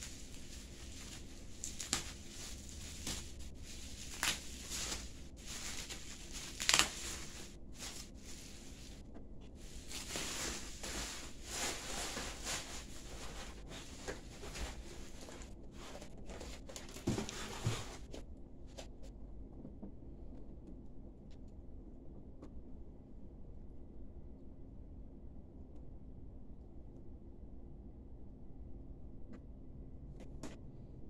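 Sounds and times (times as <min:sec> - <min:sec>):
plastic bag crinkling: 0:00.0 - 0:09.0, 0:09.6 - 0:17.8.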